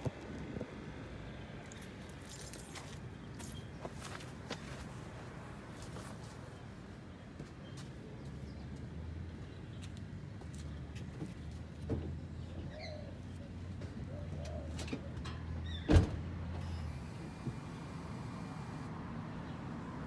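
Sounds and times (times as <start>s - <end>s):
dove cooing: 14.0s - 15.2s.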